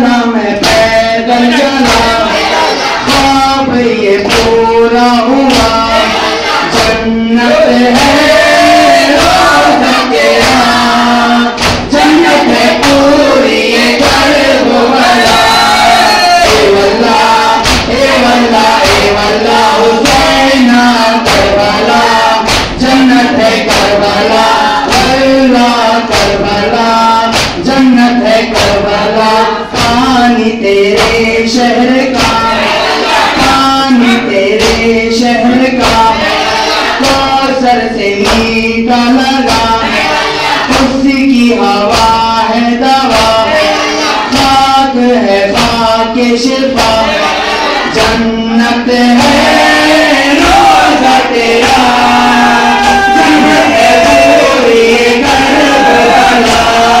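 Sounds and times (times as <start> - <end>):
men singing in chorus: 0.0 - 57.0
chest beating strikes: 11.6 - 13.0, 14.0 - 18.2.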